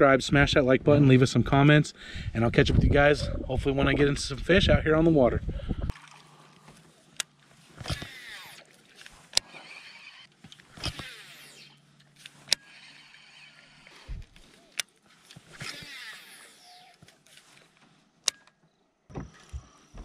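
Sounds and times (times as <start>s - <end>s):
fishing reel spool whirring: 5.9s - 17.3s
fishing reel clicks: 7.2s - 17.0s.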